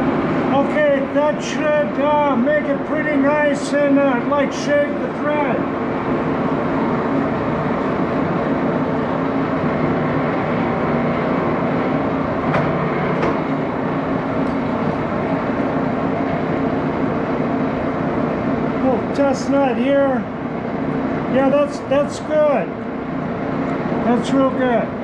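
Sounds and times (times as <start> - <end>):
lathe motor humming: 0.0 - 25.0.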